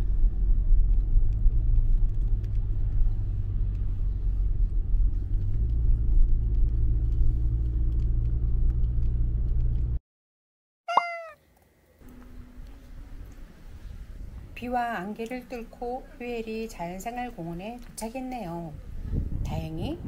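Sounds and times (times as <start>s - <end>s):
car driving rumble inside cabin: 0.0s - 10.0s.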